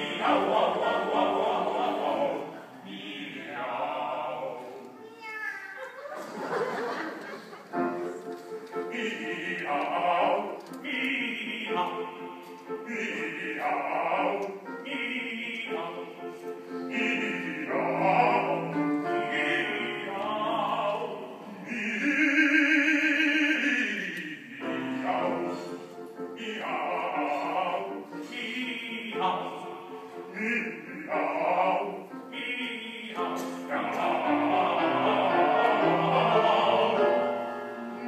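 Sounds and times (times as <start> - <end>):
piano accompaniment: 0.0 - 4.6, 7.4 - 38.0
man singing opera: 0.0 - 4.9, 8.7 - 37.4.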